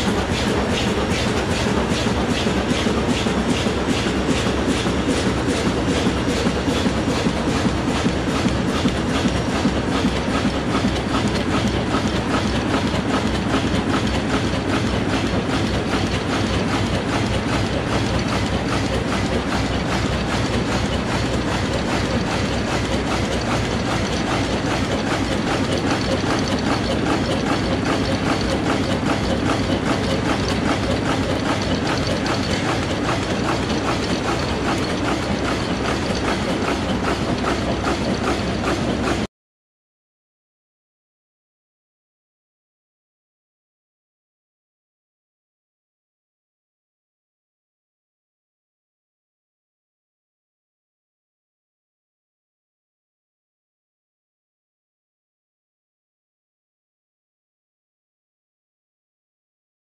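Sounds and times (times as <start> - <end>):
machine rapid mechanical clatter: 0.0 - 39.3.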